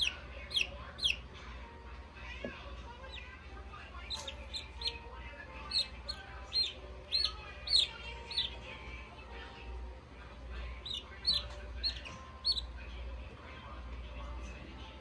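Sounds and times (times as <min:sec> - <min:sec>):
chick peeping: 0:00.0 - 0:01.2, 0:04.1 - 0:05.0, 0:05.6 - 0:08.6, 0:10.8 - 0:12.7.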